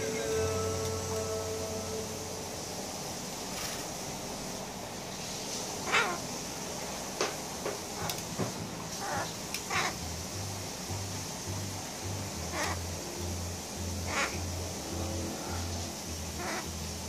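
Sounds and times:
parrot squawking: 0:05.7 - 0:06.4, 0:07.9 - 0:10.3, 0:11.6 - 0:17.0.

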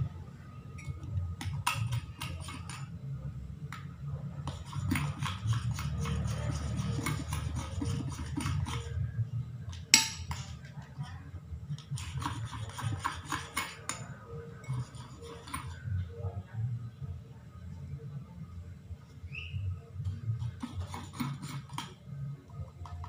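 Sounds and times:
metal spoon clinking in ceramic bowl: 0:00.8 - 0:01.0.

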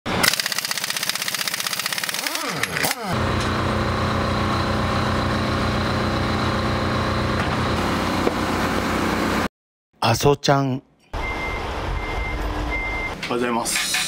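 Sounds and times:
pneumatic impact wrench hammering: 0:00.2 - 0:03.2.

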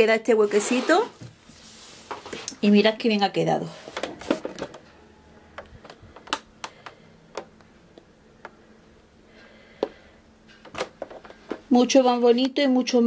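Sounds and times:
handling clicks and taps: 0:05.5 - 0:08.6.

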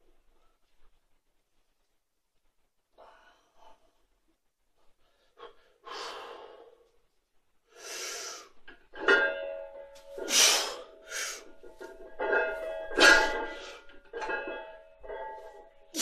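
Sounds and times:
man breathing forcefully: 0:10.2 - 0:11.5.

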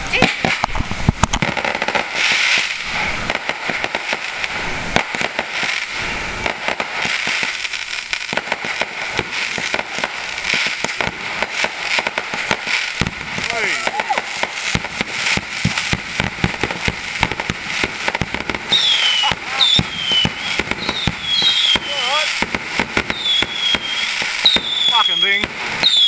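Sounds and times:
firework launch thumps and bangs: 0:00.0 - 0:18.9, 0:19.7 - 0:26.0
crackle of bursting fireworks: 0:00.0 - 0:26.0.

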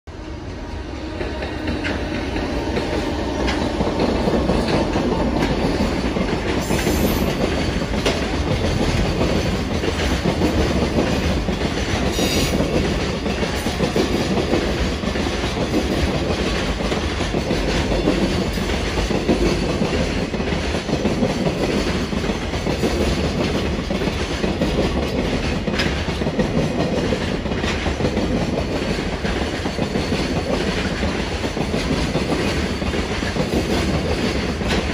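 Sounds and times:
train wheels clattering over rails: 0:00.2 - 0:34.9.

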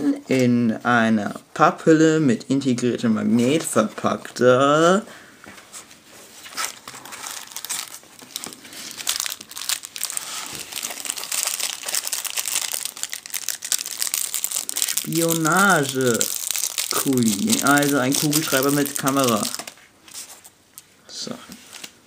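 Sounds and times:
plastic packaging crinkling: 0:06.4 - 0:20.9.

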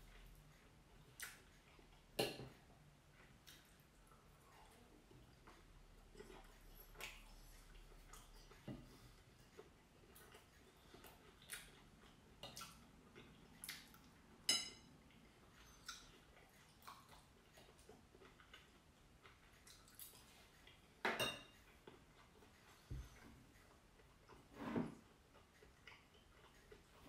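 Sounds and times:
cutlery clinking on a plate: 0:14.5 - 0:14.9, 0:21.0 - 0:21.6.

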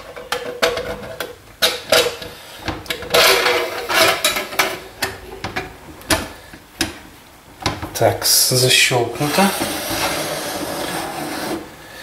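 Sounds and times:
metal scraping rattle: 0:03.1 - 0:04.9.

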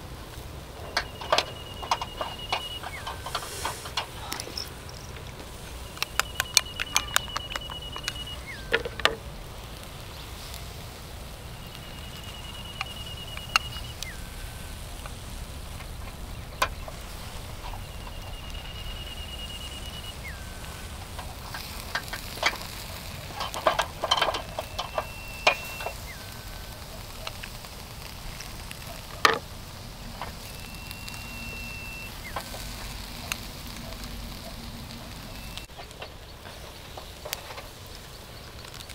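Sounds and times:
sharp clicks and crackles: 0:00.0 - 0:38.9
skewers sizzling on charcoal grill: 0:00.0 - 0:38.9
bird trilled call: 0:00.8 - 0:03.6, 0:05.8 - 0:09.2, 0:11.5 - 0:15.0, 0:16.0 - 0:27.5, 0:30.0 - 0:36.6.

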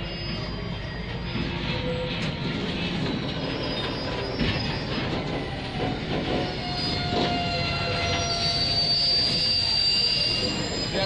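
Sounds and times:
thin steady wheel squeal: 0:00.0 - 0:11.0
freight wagon wheels rumbling: 0:01.3 - 0:08.3.

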